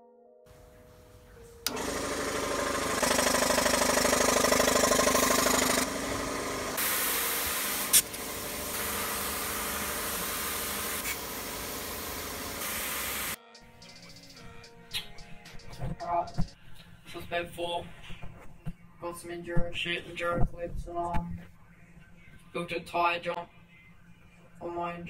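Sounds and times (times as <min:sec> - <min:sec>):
electric air compressor running: 0:01.7 - 0:13.4.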